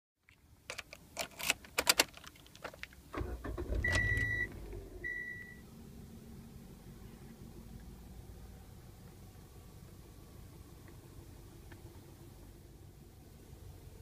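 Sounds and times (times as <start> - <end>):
keys jangling in ignition: 0.7 - 4.3
car engine starting and idling: 0.7 - 14.0.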